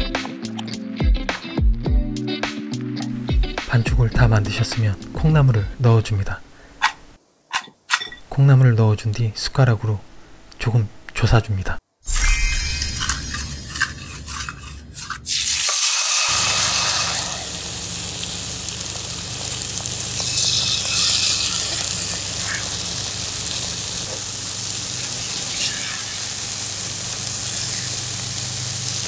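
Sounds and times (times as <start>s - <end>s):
batter sizzling in hot oil: 12.2s - 29.0s.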